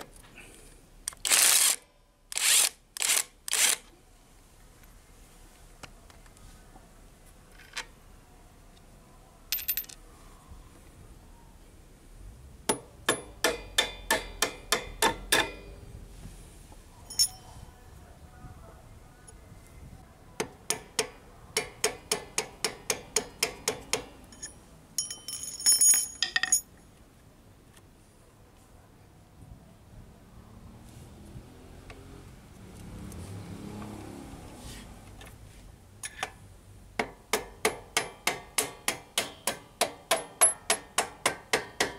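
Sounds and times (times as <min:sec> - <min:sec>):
hammer striking steel bolt: 0:12.7 - 0:15.7, 0:20.4 - 0:24.5, 0:37.0 - 0:41.9.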